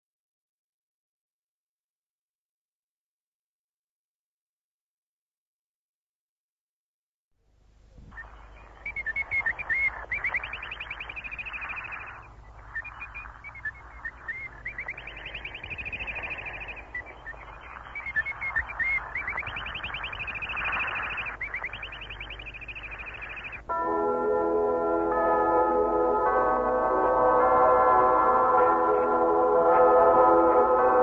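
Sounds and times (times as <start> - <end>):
radio static hiss: 7.8 - 23.7
birdsong interval signal on radio: 7.9 - 23.7.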